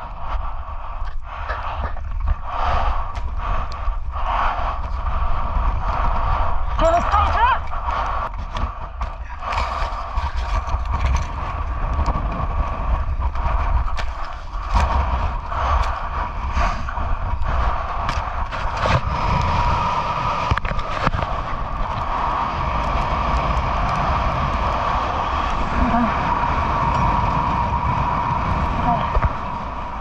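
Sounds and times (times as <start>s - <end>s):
gale wind buffeting microphone: 0.0s - 30.0s
knocks and scrapes of gear: 8.3s - 12.2s.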